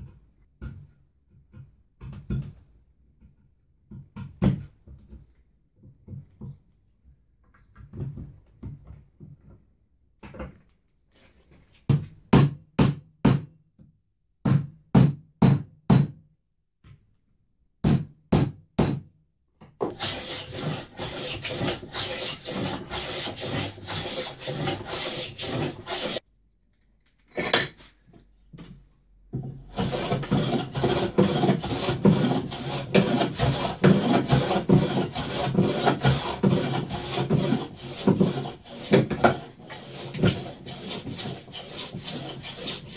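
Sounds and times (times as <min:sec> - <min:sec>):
wire brush scrubbing wood: 0:19.9 - 0:26.2, 0:29.8 - 0:42.9.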